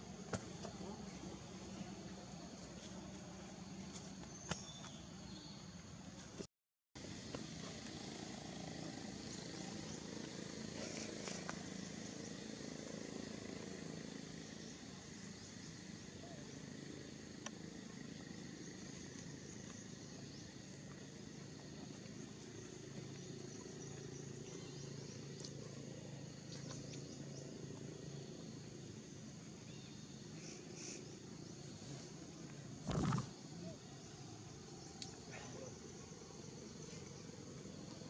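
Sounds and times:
high insect buzz: 32.8 - 33.6.

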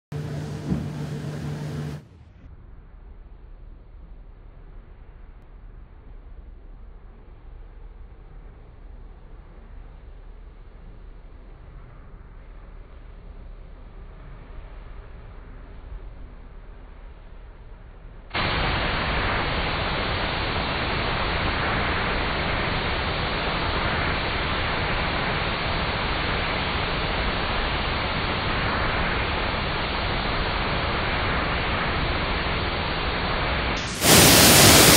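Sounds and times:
loud steady hiss: 13.0 - 34.9.

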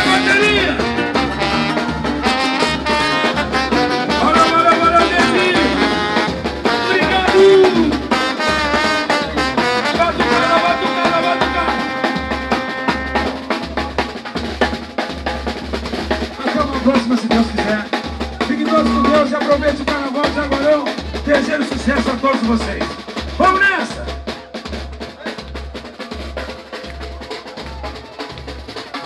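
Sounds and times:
samba band playing: 0.0 - 29.0
low drum pulse: 17.3 - 21.3
plucked string melody: 18.4 - 19.9.

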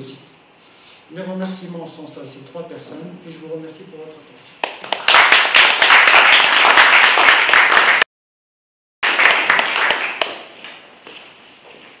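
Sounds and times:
audience applauding: 4.6 - 8.1, 9.0 - 10.5.

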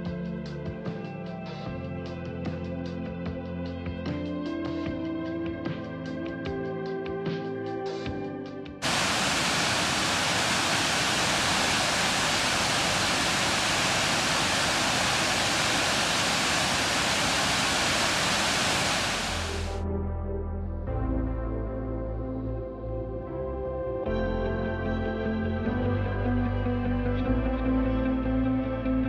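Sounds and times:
waterfall rushing: 8.8 - 19.8
soft background music: 19.8 - 29.0.

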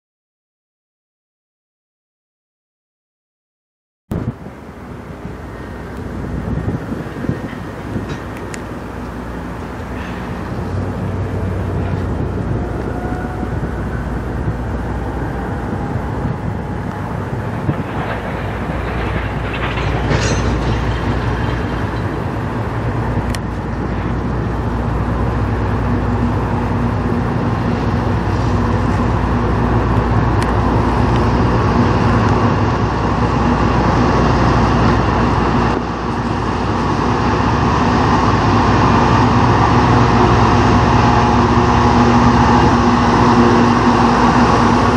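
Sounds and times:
locomotive engines rumbling: 4.2 - 44.9
wheel-on-rail noise: 4.3 - 44.9.

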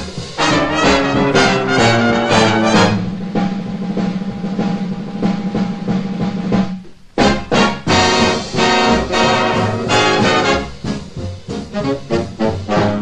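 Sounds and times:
punchy brass chords: 0.0 - 4.1, 7.2 - 13.0
big band music with brass and drums: 0.0 - 13.0.

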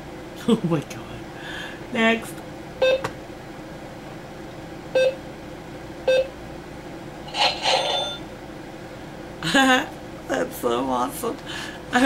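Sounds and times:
scratchy electronic sound: 7.3 - 8.2
toy cash register beeps: 7.4 - 8.2.

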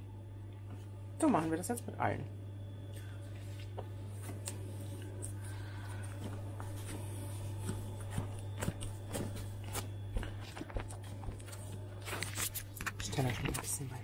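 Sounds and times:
steady low hum: 0.0 - 14.0
hands working dough: 3.2 - 14.0.

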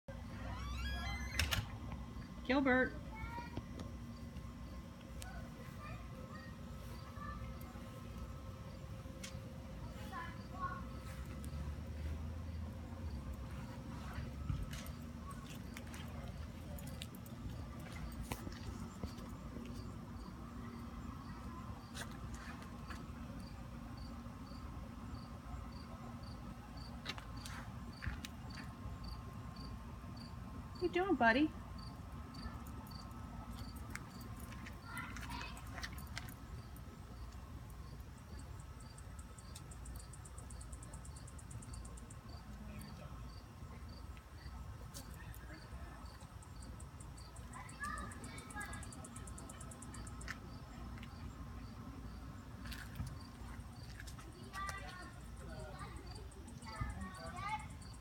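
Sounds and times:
low steady hum: 0.1 - 58.0
cricket chirping: 23.4 - 26.9, 27.9 - 30.3, 35.9 - 54.0, 54.7 - 58.0.

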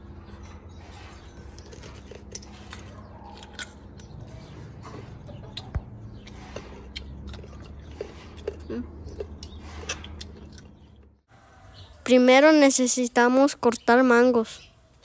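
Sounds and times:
wet chewing sounds: 1.4 - 11.2.

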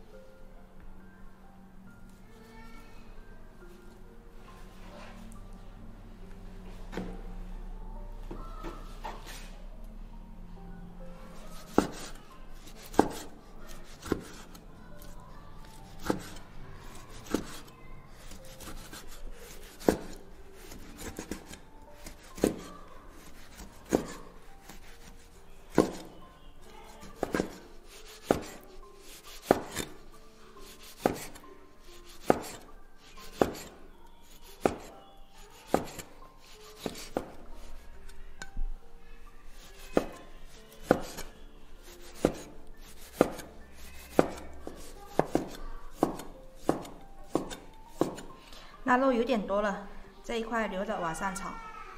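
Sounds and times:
cleaver slicing meat: 11.4 - 26.2, 26.9 - 30.0, 30.6 - 38.0, 39.5 - 48.3.

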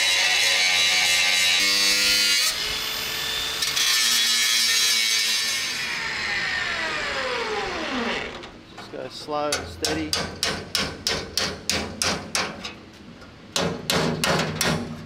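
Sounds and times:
angle grinder cutting steel: 0.0 - 8.4.

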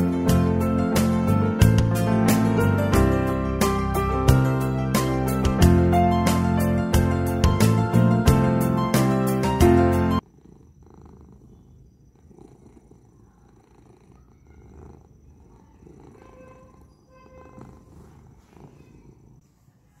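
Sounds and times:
cat purring: 10.2 - 20.0.

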